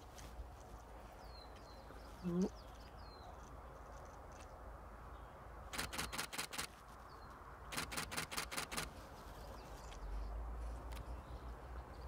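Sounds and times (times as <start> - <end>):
camera shutter clicking: 5.8 - 6.7, 7.7 - 8.9.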